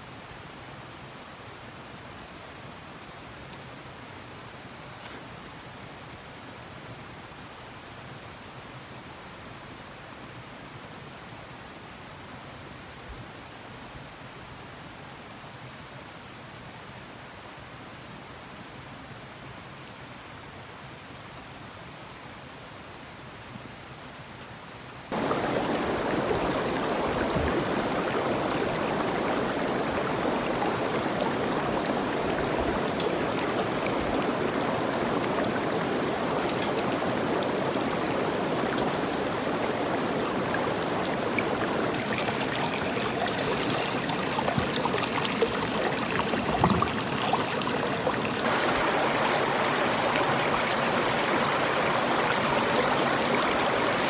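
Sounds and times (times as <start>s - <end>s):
stream rushing over rocks: 24.4s - 54.0s.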